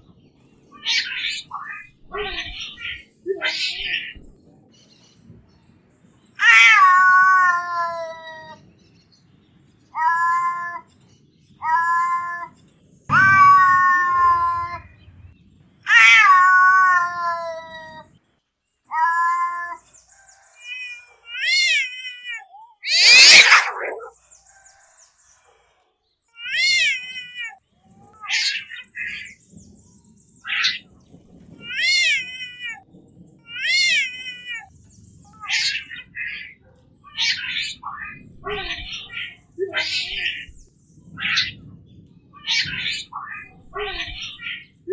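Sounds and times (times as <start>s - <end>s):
cats meowing and yowling: 0.7s - 4.4s, 6.4s - 8.7s, 9.9s - 15.3s, 15.9s - 18.2s, 18.9s - 19.9s, 20.6s - 24.2s, 26.3s - 29.4s, 30.4s - 44.9s.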